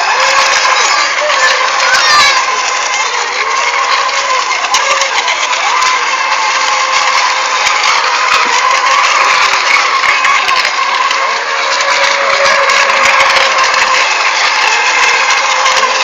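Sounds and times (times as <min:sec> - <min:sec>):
electric model boat motors whining: 0:00.0 - 0:16.0.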